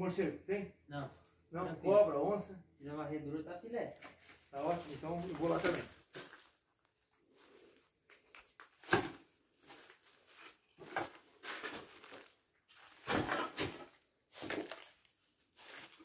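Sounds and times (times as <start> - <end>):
footsteps crunching through undergrowth: 4.0 - 16.0.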